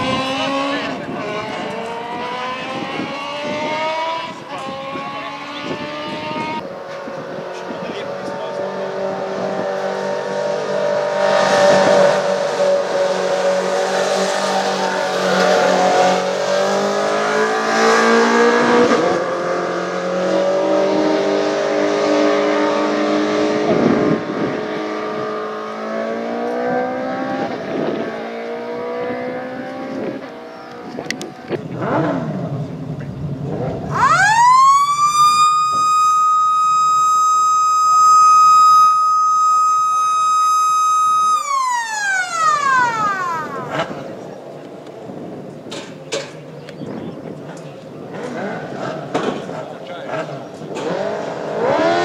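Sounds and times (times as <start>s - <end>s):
race car engines revving: 0.0s - 52.0s
siren: 1.4s - 6.8s, 33.9s - 43.9s.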